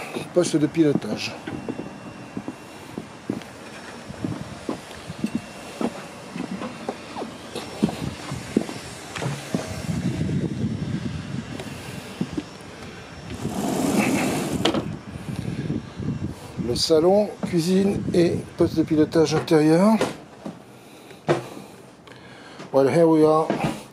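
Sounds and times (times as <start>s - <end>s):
footsteps on a boat deck: 0.0s - 10.4s, 11.6s - 12.5s, 17.3s - 17.9s
door opening rush: 13.4s - 14.9s.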